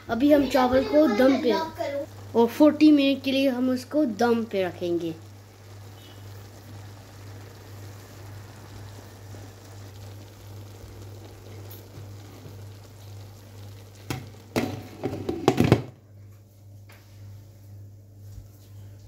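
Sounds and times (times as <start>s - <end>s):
pot sizzling faintly: 0.0s - 17.4s
steady low hum: 0.0s - 19.0s
clattering knocks against pot: 14.1s - 16.0s.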